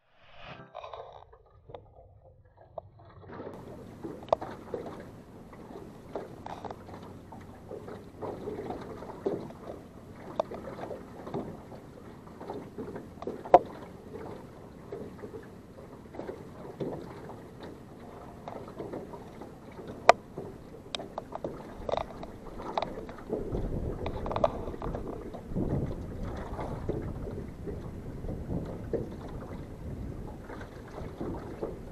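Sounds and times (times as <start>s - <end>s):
water lapping against boat hull: 2.8s - 31.9s.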